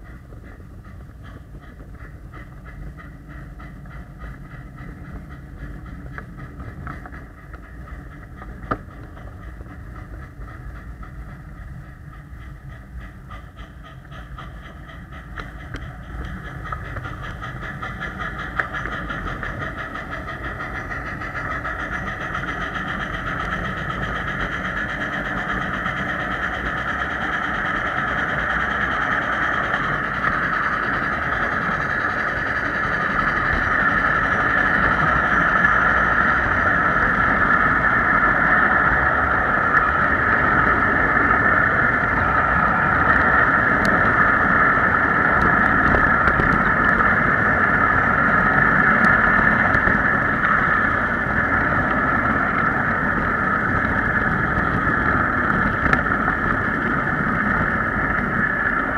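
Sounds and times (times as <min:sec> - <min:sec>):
miniature train running on track: 0:00.0 - 0:58.9.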